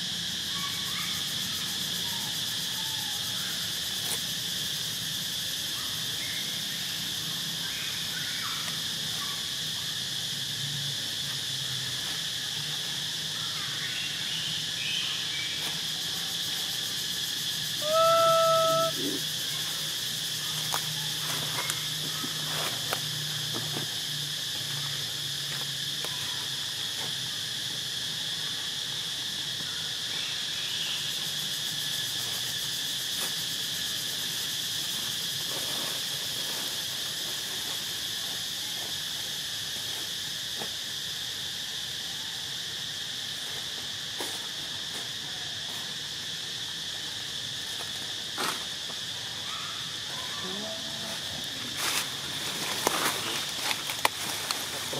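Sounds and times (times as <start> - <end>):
insects droning: 0.0 - 54.9
loud animal call: 17.8 - 19.4.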